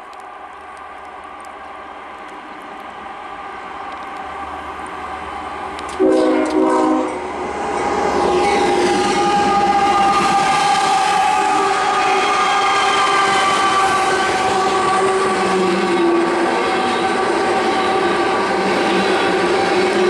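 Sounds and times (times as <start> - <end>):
diesel locomotive engines: 0.0 - 20.0
locomotive air horn blasts: 6.0 - 7.2.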